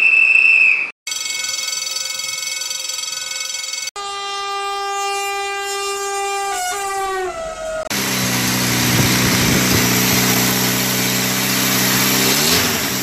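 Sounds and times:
train horn blasts: 4.0s - 7.7s.

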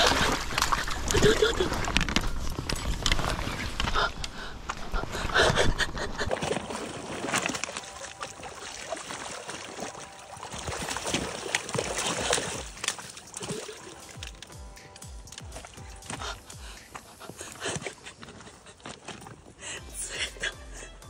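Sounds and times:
fish splashing in water: 0.0s - 4.8s, 6.2s - 14.5s.

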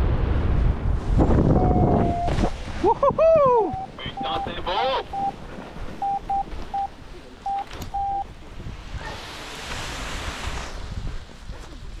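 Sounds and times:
wind noise on microphone: 0.0s - 12.0s
short electronic beeps: 3.7s - 5.4s, 6.0s - 8.3s.

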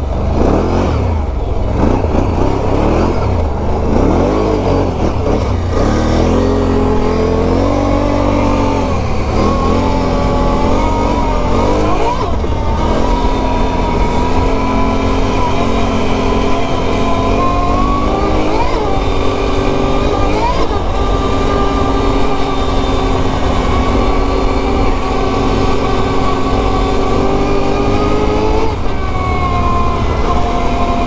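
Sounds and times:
atv engine revving: 0.0s - 31.0s.

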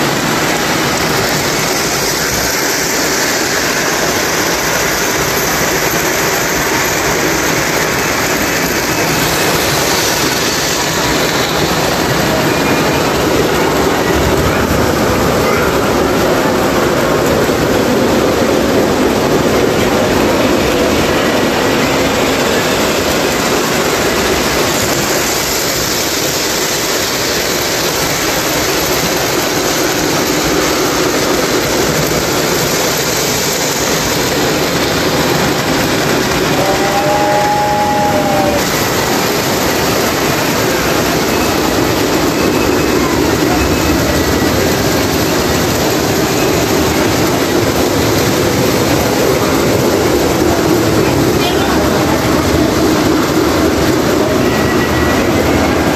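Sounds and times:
model train wheels rumbling on track: 0.0s - 55.9s
two-tone train whistle: 36.4s - 39.3s.

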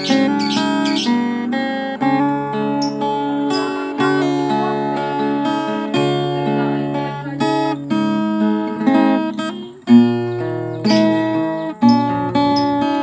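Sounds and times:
strummed acoustic guitar: 0.0s - 13.0s.

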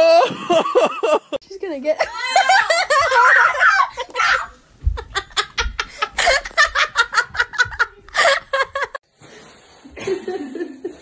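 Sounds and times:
people laughing: 2.0s - 9.0s.

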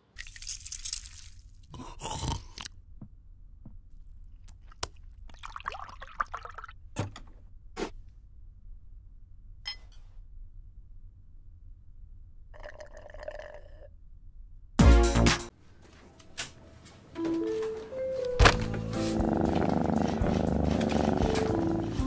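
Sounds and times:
milk pouring into mug: 5.3s - 6.7s.

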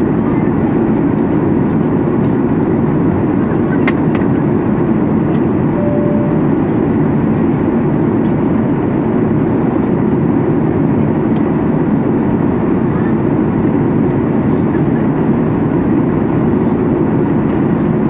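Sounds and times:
aircraft cabin engine rush: 0.0s - 18.0s
faint steady whine: 5.5s - 8.4s
single tone chime: 5.8s - 6.7s.

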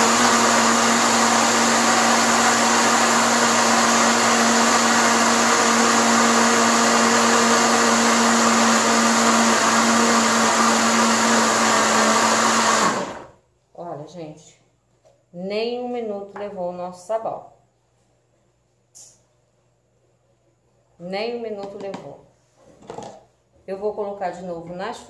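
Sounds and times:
blender motor running: 0.0s - 13.4s.

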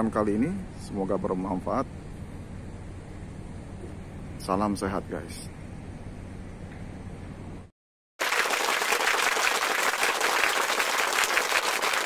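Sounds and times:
crowd applause: 8.2s - 12.0s.

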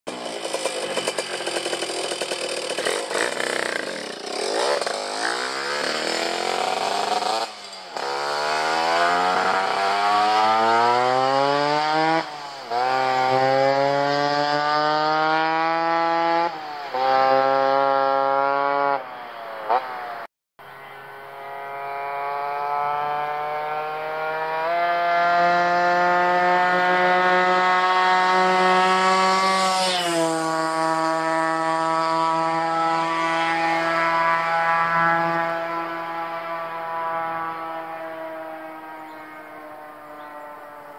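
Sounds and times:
two-stroke engine accelerating: 0.1s - 40.9s.

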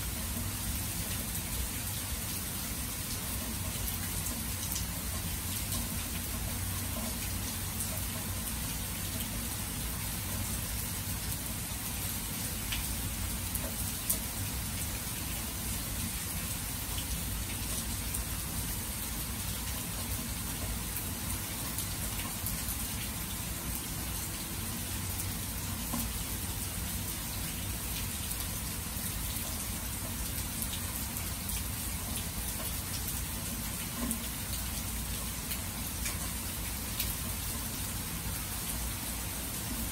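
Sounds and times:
steady rain falling: 0.0s - 39.9s
raindrop ticks: 3.6s - 8.2s, 12.7s - 12.9s, 25.8s - 26.1s, 31.4s - 33.0s.

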